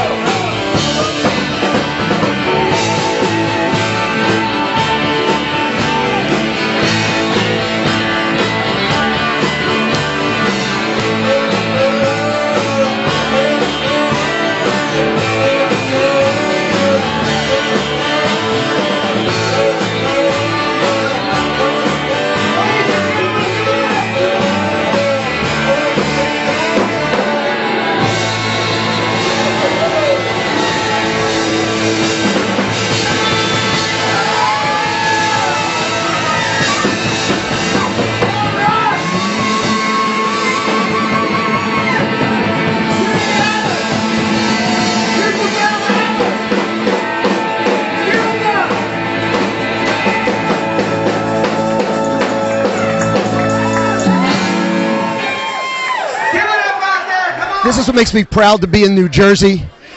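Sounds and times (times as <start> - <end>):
electric guitar: 0.0 - 56.3
live rock band playing: 0.0 - 56.3, 57.6 - 59.9
people singing into microphones: 8.7 - 29.9.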